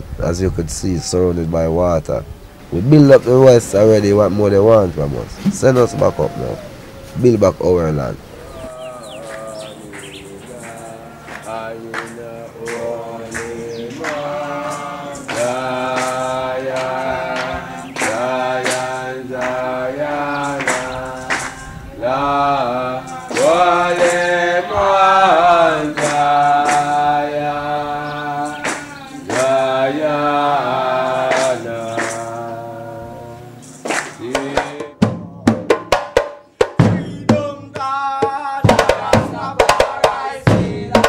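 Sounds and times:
steady drum strikes: 5.3 - 6.3, 34.3 - 41.0
chant sung in held phrases: 8.2 - 35.8, 37.0 - 41.0.

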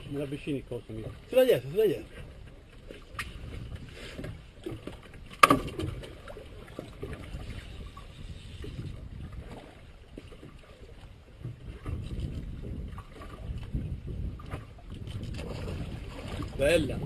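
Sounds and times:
boat engine rumble: 0.0 - 17.0
net knocking against boat: 4.2 - 6.1.

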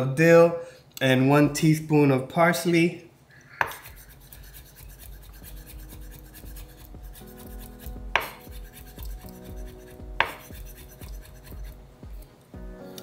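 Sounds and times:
knife chopping on wooden board: 3.6 - 4.0, 5.0 - 12.2
sharp knocks: 8.1 - 8.4, 10.2 - 10.5.

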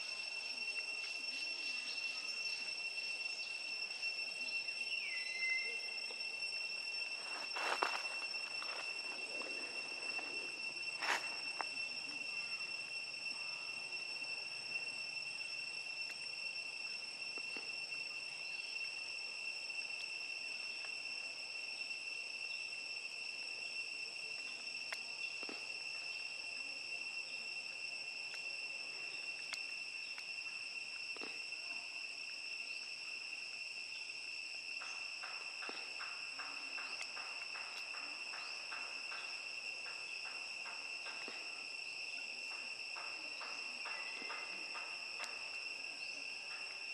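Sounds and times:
insects droning: 0.0 - 46.9
faint clicks: 24.4 - 25.6, 29.4 - 30.3, 34.8 - 38.1.

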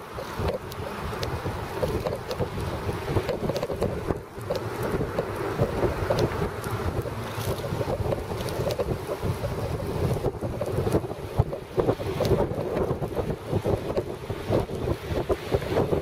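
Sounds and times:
wind buffeting microphone: 0.0 - 16.0
light clicks from bicycle: 0.1 - 9.4.

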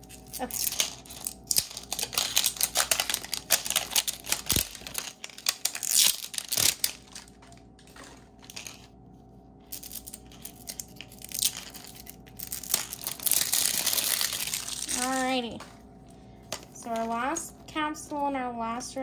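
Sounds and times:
plastic wrapper crinkling: 0.0 - 9.0, 9.6 - 15.7.

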